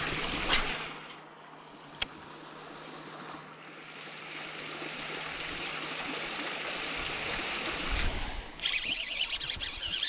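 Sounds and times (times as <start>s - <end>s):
water rushing: 0.0s - 10.0s
high wavering squeal: 8.6s - 10.0s.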